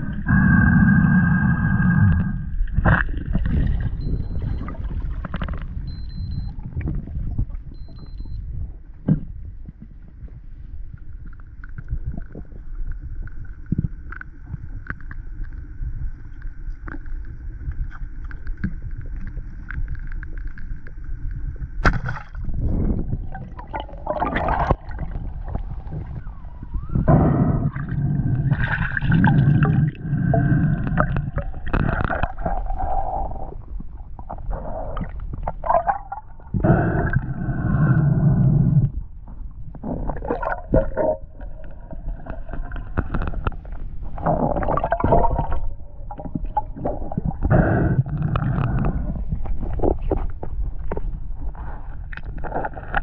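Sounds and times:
muffled underwater rumble: 0.0s - 53.0s
faint steady tone: 3.6s - 39.8s
gurgling rushing water: 39.8s - 50.1s.

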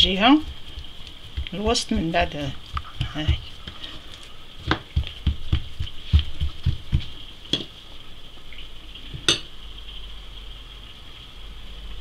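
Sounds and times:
hands patting dough on board: 0.1s - 3.9s, 4.6s - 7.7s.

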